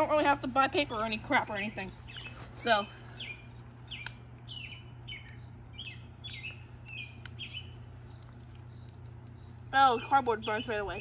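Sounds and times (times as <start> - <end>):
small bird chirping: 1.7 - 11.0
sharp clicks: 3.6 - 4.5.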